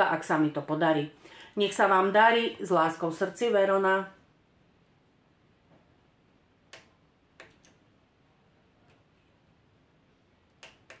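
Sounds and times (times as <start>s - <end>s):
faint sharp clicks: 6.7s - 7.8s, 10.5s - 11.0s.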